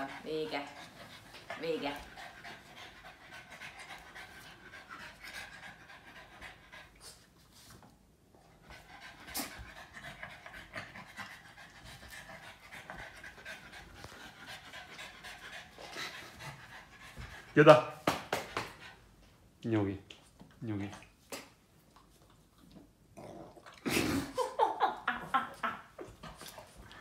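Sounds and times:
dog panting rapidly: 0:00.0 - 0:07.2, 0:08.6 - 0:19.0.

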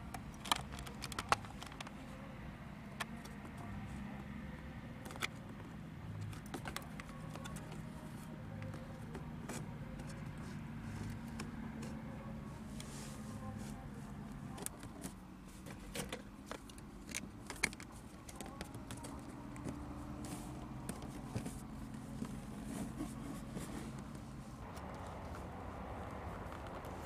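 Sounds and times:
plastic card clicking and scraping: 0:00.2 - 0:02.0, 0:05.0 - 0:07.9, 0:14.6 - 0:24.2.

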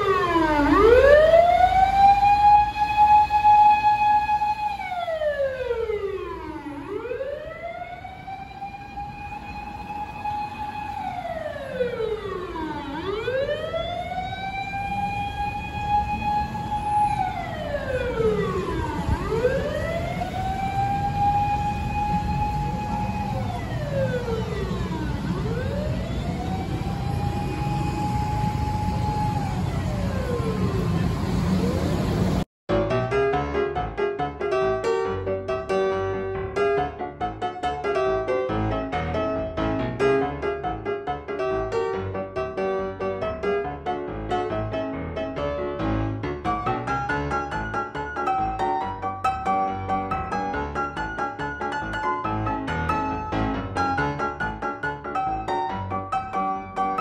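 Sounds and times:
fire engine siren wailing: 0:00.0 - 0:32.5, 0:46.4 - 0:57.0
street traffic rumble: 0:00.0 - 0:32.5.

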